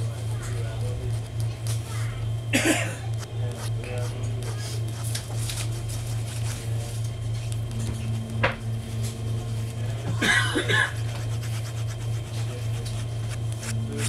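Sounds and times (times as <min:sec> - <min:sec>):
train cabin hum: 0:06.5 - 0:11.4.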